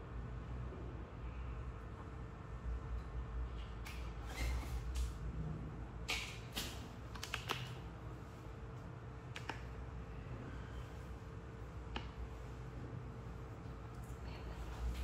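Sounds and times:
low room hum: 0.0s - 15.0s
hands slapping skin: 6.1s - 7.8s.

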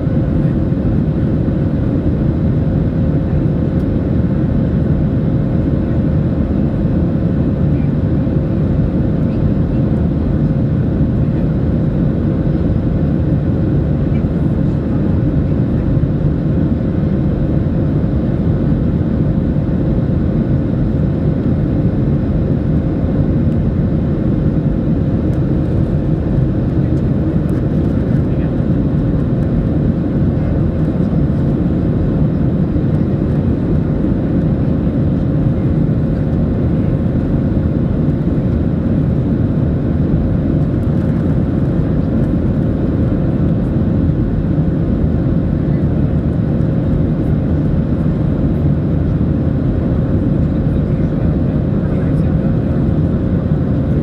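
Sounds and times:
airliner cabin noise: 0.0s - 54.0s.

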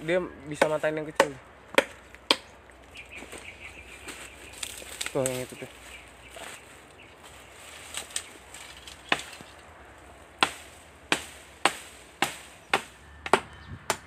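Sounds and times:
blade chopping into branch: 8.0s - 9.6s, 10.4s - 14.0s.

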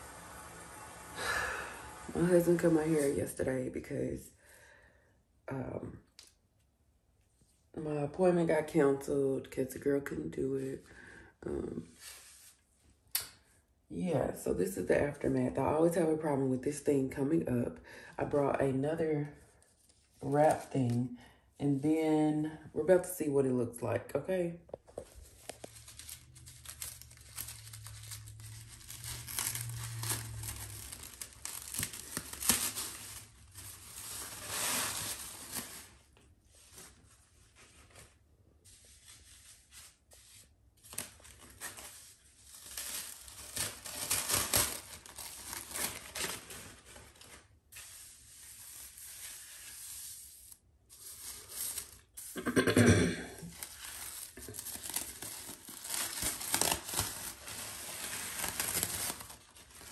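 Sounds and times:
fabric hair wrap rustling: 24.9s - 50.2s, 53.5s - 59.9s.

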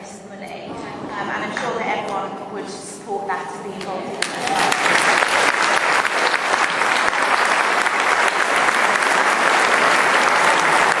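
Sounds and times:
crowd applause in a hall: 4.2s - 11.0s.

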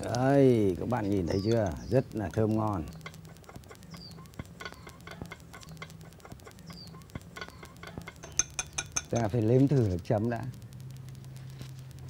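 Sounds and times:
small bird chirping: 0.6s - 9.4s
chopsticks clicking on ceramic bowl: 7.3s - 9.3s.

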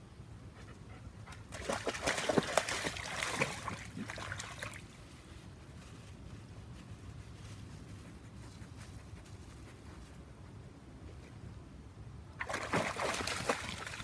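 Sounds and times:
dog splashing through water: 1.5s - 5.0s, 12.4s - 14.0s.

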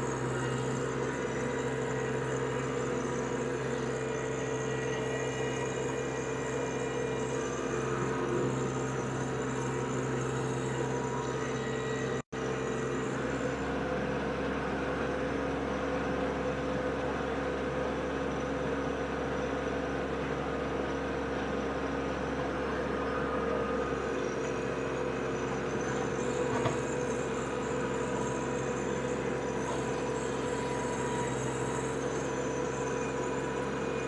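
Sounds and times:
tractor diesel engine running: 0.0s - 34.0s
rotary tiller turning soil: 24.2s - 34.0s.

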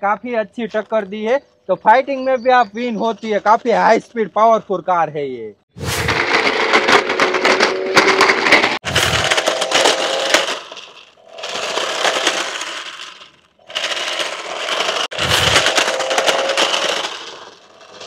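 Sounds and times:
crackling clatter: 5.8s - 18.0s
toy car motor whining: 6.6s - 18.0s.

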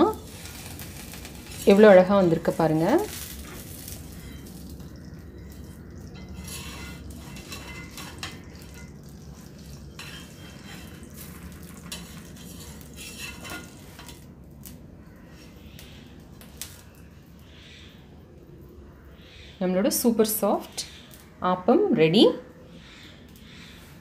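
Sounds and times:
faint sizzle: 0.0s - 24.0s
metal spatula scraping iron pan: 0.2s - 4.6s, 5.6s - 14.2s.

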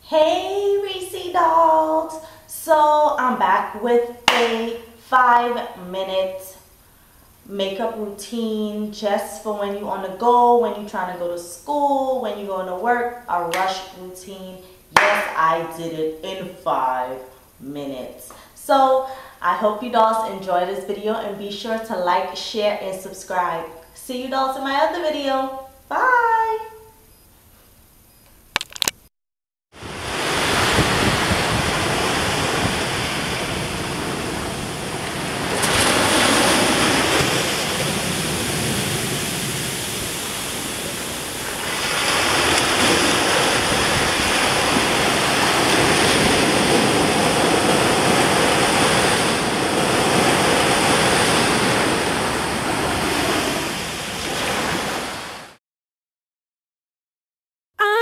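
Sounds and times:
ocean surf rushing: 4.2s - 4.8s, 29.8s - 55.6s
sharp clicks: 28.2s - 29.0s.

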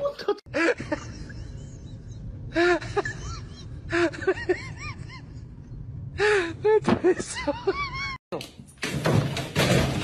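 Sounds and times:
low background rumble: 0.5s - 8.2s.

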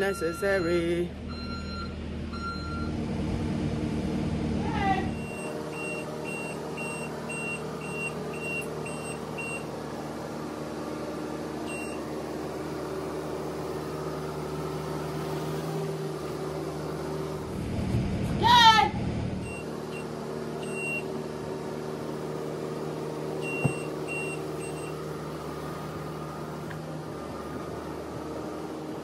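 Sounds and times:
reversing alarm beeping: 0.0s - 3.0s, 5.1s - 9.7s, 11.6s - 12.1s, 19.4s - 21.2s, 23.4s - 25.2s
machine engine running: 1.1s - 29.0s.

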